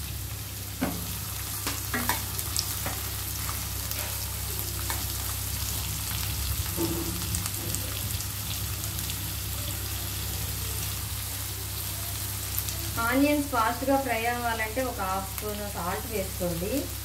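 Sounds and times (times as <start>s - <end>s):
onions sizzling in hot oil: 0.0s - 17.0s.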